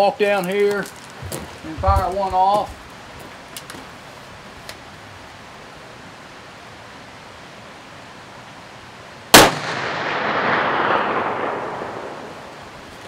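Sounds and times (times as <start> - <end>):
gunshot echo: 9.3 - 12.6
rifle shot: 9.3 - 12.7.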